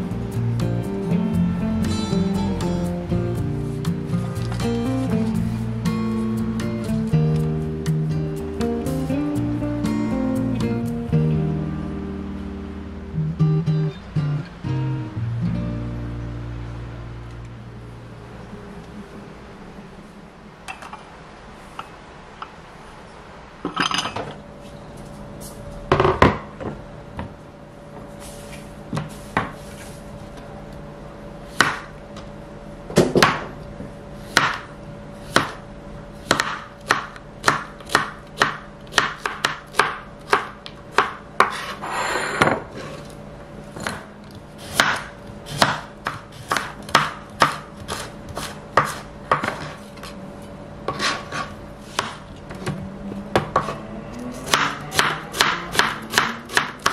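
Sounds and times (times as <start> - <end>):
knife chopping on plastic board: 34.3 - 34.7, 36.3 - 41.7, 43.8 - 49.8, 50.9 - 52.2, 54.5 - 56.9.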